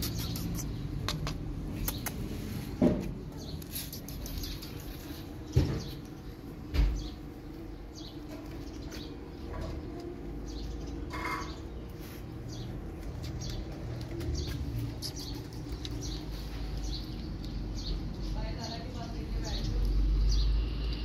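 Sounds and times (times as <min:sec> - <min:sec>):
cat crunching dry kibble: 0:03.5 - 0:05.4, 0:12.7 - 0:18.3.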